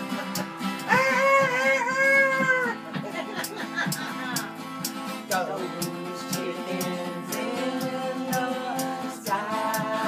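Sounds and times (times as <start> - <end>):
acoustic guitars strumming: 0.0 - 10.0
woman singing wordless notes: 5.3 - 10.0.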